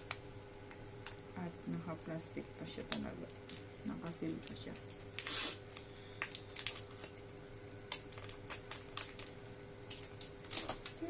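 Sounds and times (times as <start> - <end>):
plastic film crinkling: 2.8 - 7.2, 7.9 - 11.0.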